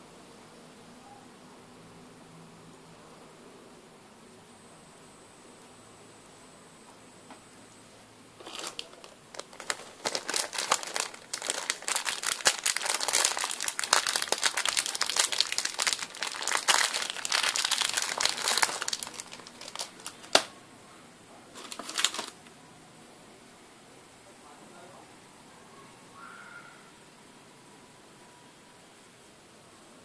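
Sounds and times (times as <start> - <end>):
plastic bag crinkling: 8.4 - 20.5, 21.6 - 22.5.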